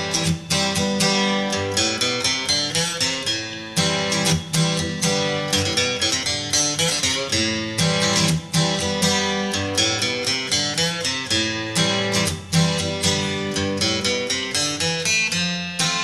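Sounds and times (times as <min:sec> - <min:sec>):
acoustic guitar plucking and strumming: 0:00.0 - 0:16.0.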